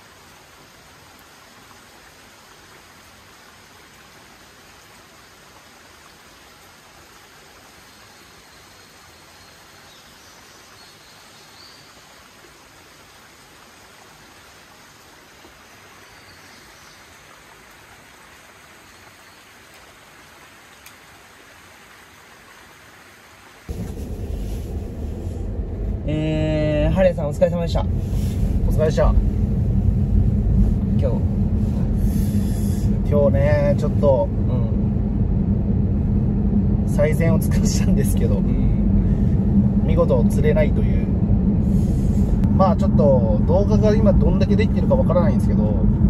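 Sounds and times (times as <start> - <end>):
heavy rain falling: 0.0 - 8.4, 12.5 - 46.0
faint click: 20.8 - 21.0.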